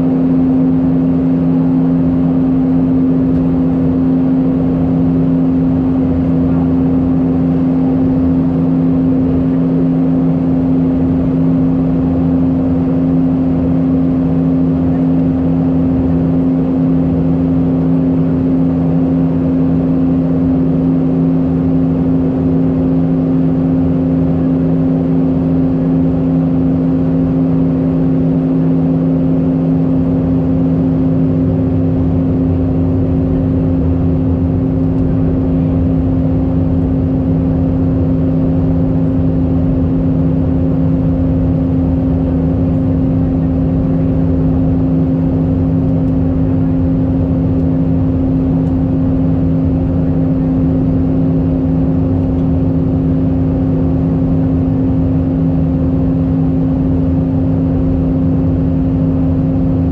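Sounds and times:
airplane cabin engine drone: 0:00.0 - 0:59.9
low hums: 0:27.6 - 0:59.9.

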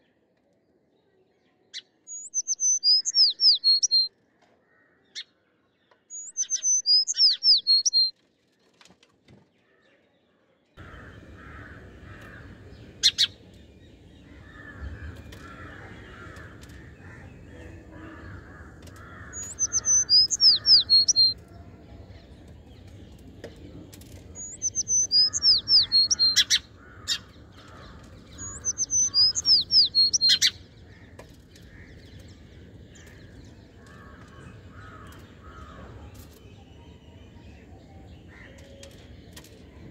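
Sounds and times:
songbird chirping: 0:00.0 - 0:39.9
distant crow cawing: 0:10.8 - 0:13.4, 0:14.2 - 0:21.4, 0:24.6 - 0:36.1.

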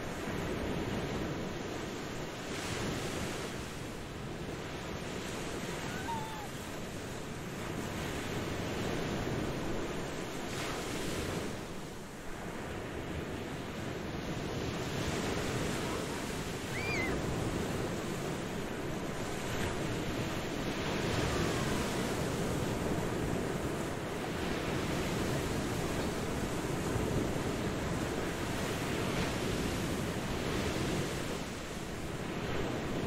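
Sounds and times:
ocean surf washing onto beach: 0:00.0 - 0:33.0
high whistling call: 0:05.8 - 0:06.6, 0:16.7 - 0:17.2.

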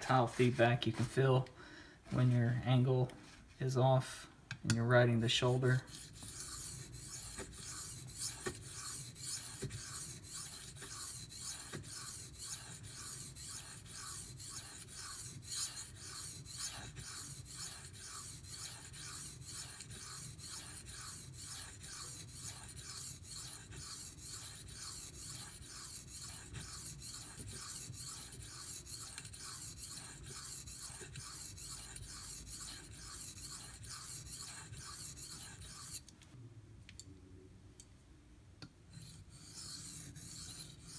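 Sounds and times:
knife scratching on sharpening stone: 0:05.8 - 0:36.0, 0:38.9 - 0:40.9.

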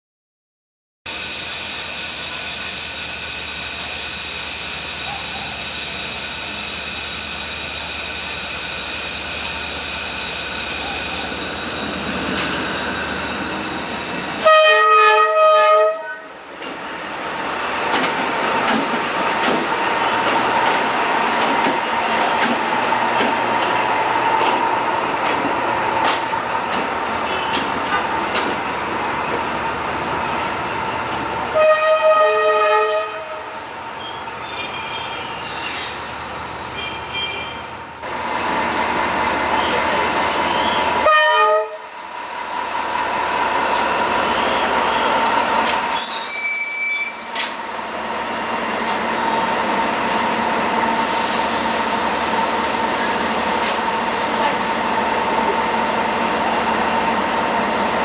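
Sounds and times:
train horn blast: 0:14.4 - 0:16.4, 0:31.5 - 0:33.6, 0:41.0 - 0:41.9
train wheels clicking over rail joints: 0:17.8 - 0:29.5, 0:48.8 - 0:51.1, 0:53.5 - 0:54.0.

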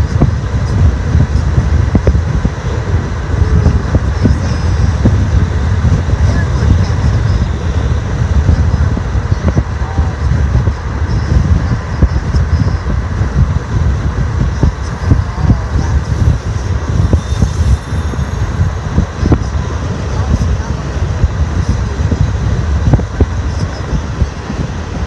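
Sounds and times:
road rumble: 0:00.0 - 0:25.0
wind buffeting microphone: 0:00.0 - 0:25.0.

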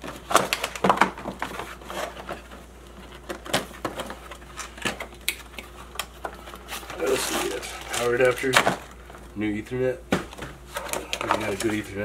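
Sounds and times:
cardboard rustling and scraping: 0:00.0 - 0:05.1, 0:06.1 - 0:09.2, 0:10.2 - 0:12.0.

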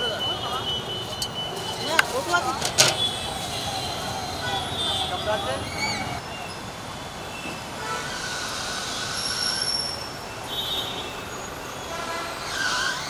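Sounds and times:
street traffic noise: 0:00.0 - 0:13.0
high-pitched squeals: 0:12.2 - 0:13.0.

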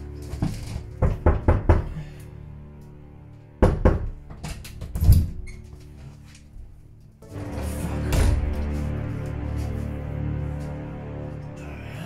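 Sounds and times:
background music: 0:00.0 - 0:12.0
knocking on a door: 0:01.0 - 0:02.0, 0:03.6 - 0:04.2.

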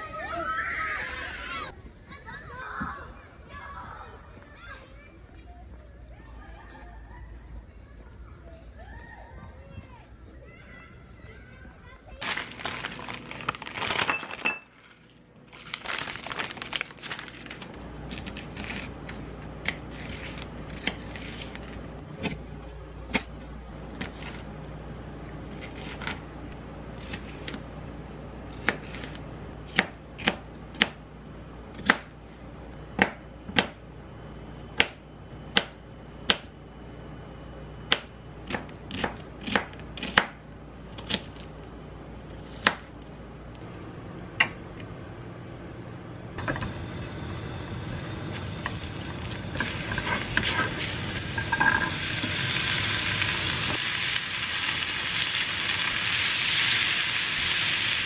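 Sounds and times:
plastic bag rustling: 0:12.2 - 0:17.8.

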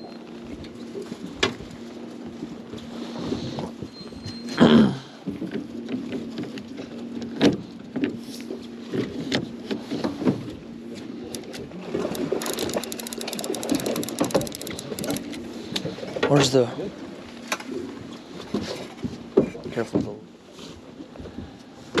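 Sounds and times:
outboard motor idling: 0:00.0 - 0:22.0
fast run of clicks: 0:11.3 - 0:15.4.

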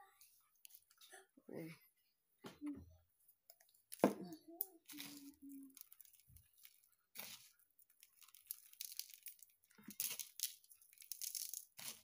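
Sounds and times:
craft materials rustling: 0:03.9 - 0:12.0.

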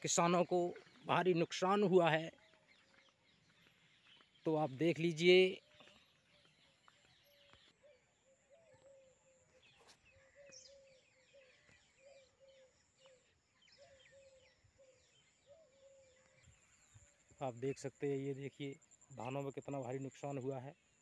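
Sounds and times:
faint higher bird chirping: 0:00.0 - 0:21.0
bird repeating low call: 0:07.2 - 0:16.6.

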